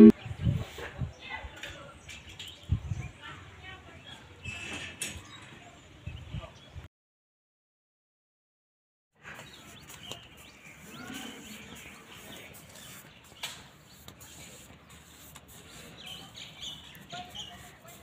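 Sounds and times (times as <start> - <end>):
small birds chirping: 9.2 - 18.0.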